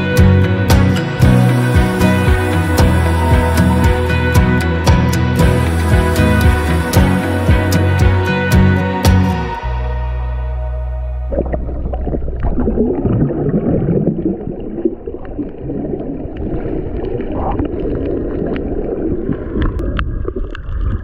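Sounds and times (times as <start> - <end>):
underwater water churning: 11.3 - 21.0.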